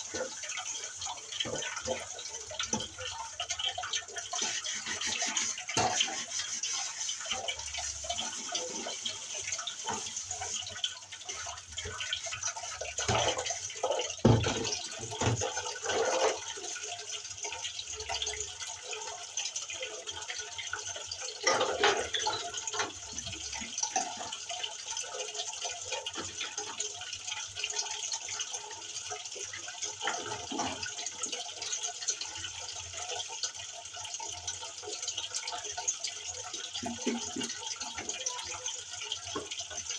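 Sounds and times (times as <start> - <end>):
water splashing and dripping: 0.0 - 39.9
dishes clinking and knocking: 13.0 - 16.5.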